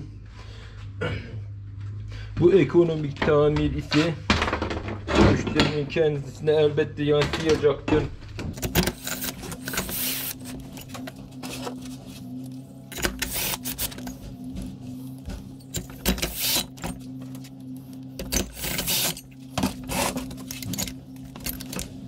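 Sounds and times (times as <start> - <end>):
steady low hum: 0.0 - 22.0
metal tools clicking and clinking: 8.6 - 11.1, 18.2 - 22.0.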